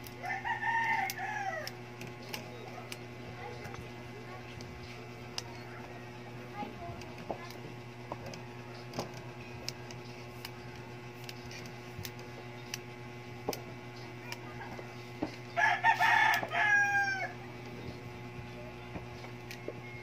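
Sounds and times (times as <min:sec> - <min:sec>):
rooster crowing: 0:00.2 - 0:01.8, 0:15.6 - 0:17.4.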